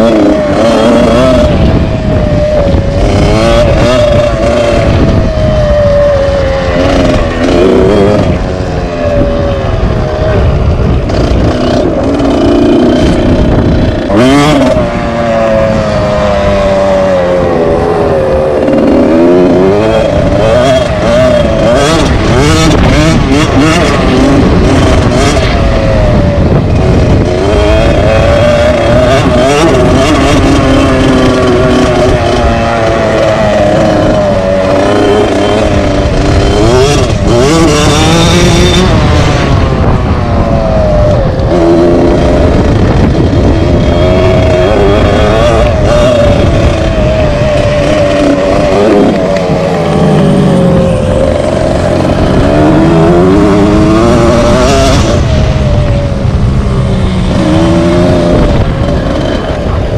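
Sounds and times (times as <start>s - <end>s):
dirt bike engine revving: 0.0s - 59.9s.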